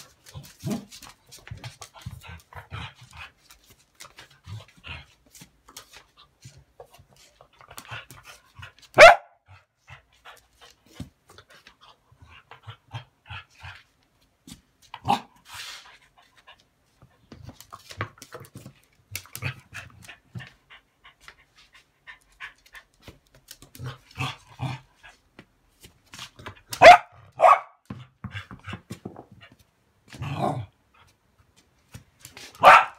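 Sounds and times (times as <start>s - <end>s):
dog barking: 9.0s - 9.4s, 26.8s - 27.8s, 32.6s - 32.9s.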